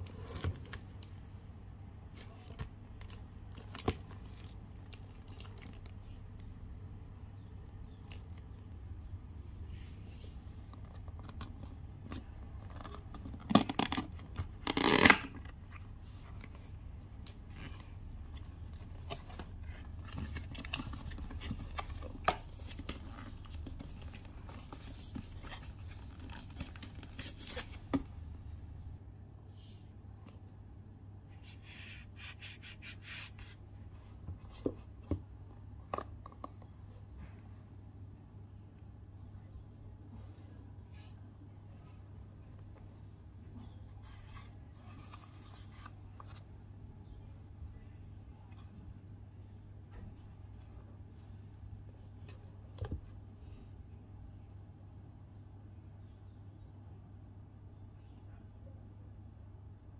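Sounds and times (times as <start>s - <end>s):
cellophane ripping: 13.4s - 15.4s.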